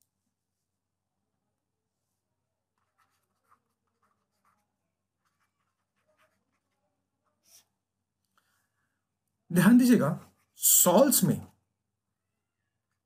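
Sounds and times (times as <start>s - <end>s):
stylus scratching on tablet: 2.7s - 7.8s.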